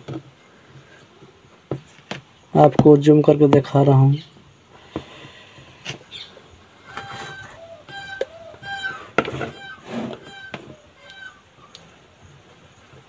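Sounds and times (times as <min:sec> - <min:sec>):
short pitched animal calls: 0:05.2 - 0:11.5.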